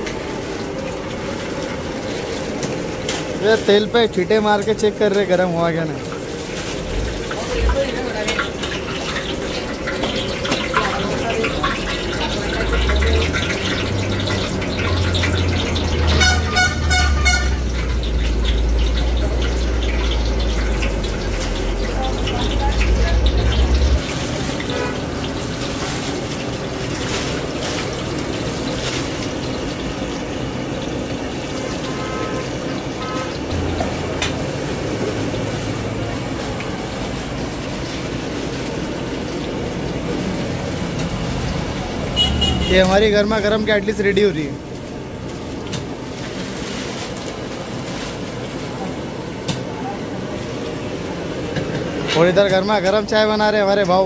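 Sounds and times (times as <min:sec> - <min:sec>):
batter frying in hot oil: 0:00.0 - 0:54.0
rumbling background noise: 0:00.0 - 0:54.0
horn beeping: 0:15.9 - 0:21.2, 0:31.7 - 0:34.2, 0:42.1 - 0:43.0.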